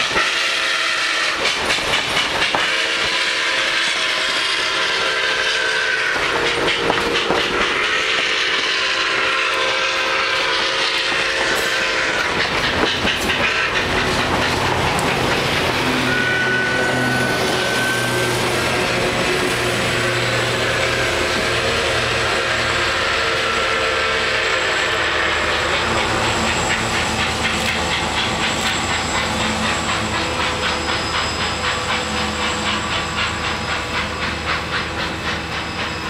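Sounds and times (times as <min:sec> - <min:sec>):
train cars rolling on rails: 0:00.0 - 0:36.0
crossing bell ringing: 0:13.0 - 0:23.9.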